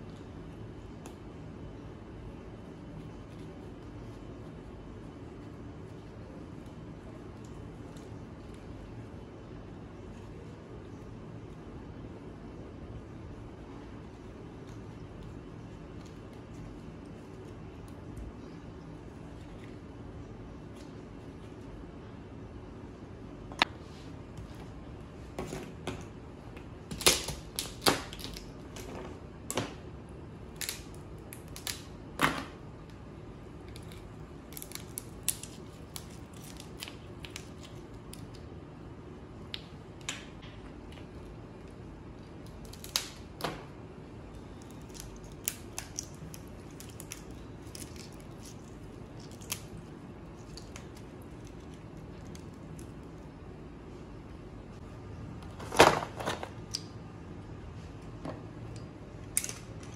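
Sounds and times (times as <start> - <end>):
steady low hum: 0.0 - 59.9
crab shell cracking by hand: 30.5 - 32.2, 33.6 - 38.5, 42.3 - 43.4, 44.5 - 53.2, 58.7 - 59.9.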